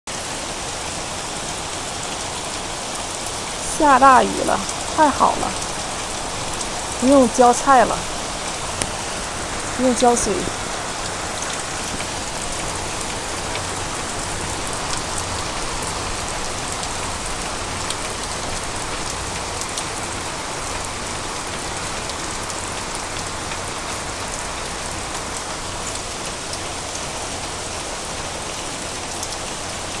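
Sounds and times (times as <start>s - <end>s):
heavy rain falling: 0.1s - 30.0s.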